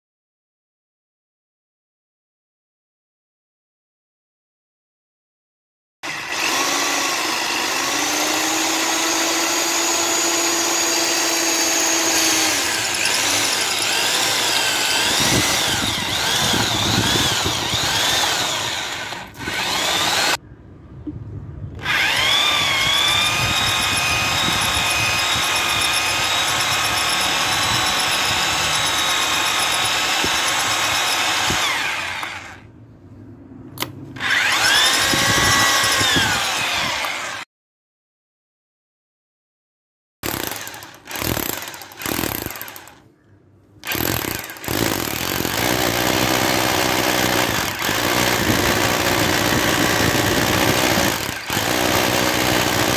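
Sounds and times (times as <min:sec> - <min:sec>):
hammer drill boring into stone: 0:06.0 - 0:20.4, 0:21.8 - 0:32.6, 0:34.2 - 0:37.4, 0:40.2 - 0:43.0, 0:43.8 - 0:52.9.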